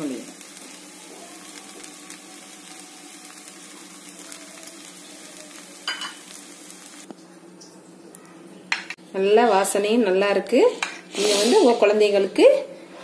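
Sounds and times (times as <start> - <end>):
bread sizzling in a frying pan: 0.0 - 7.1, 10.8 - 12.3.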